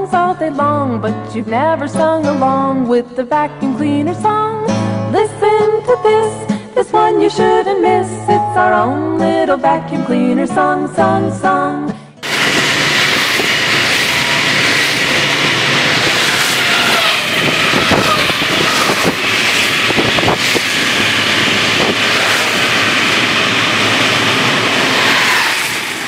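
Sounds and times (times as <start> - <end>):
rushing mechanical noise with whine: 12.2 - 26.0.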